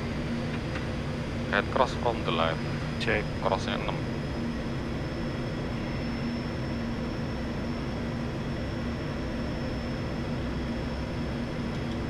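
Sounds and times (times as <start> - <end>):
faint high whine: 0.0 - 12.0
turboprop engines humming: 0.0 - 12.0.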